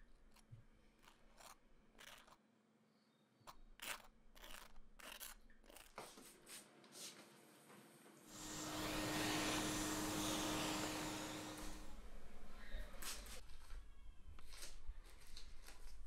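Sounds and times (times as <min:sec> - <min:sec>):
knife scraping dry toast: 0:00.2 - 0:02.4, 0:03.5 - 0:06.1.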